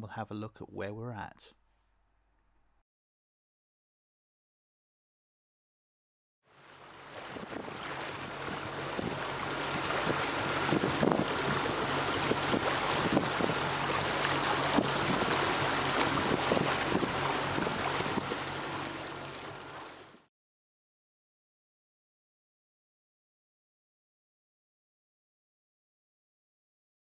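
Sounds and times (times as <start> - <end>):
wind buffeting microphone: 7.1 - 19.9.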